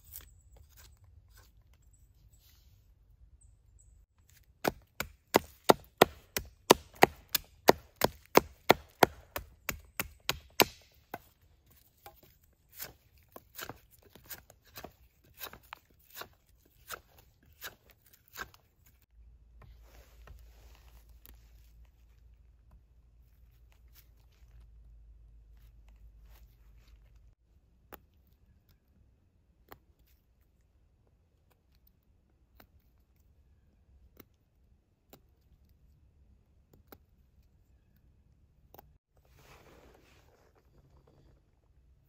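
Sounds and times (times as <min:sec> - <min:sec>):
knife chopping wood: 0:04.3 - 0:18.6.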